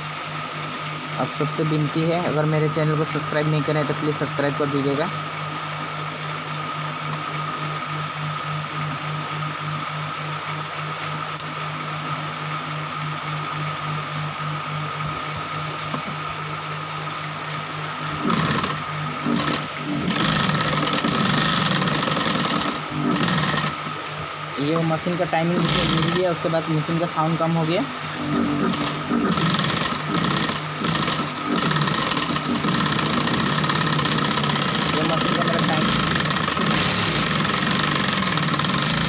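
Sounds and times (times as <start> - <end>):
sewing machine running: 18.1 - 23.8, 25.5 - 26.4, 28.2 - 39.0.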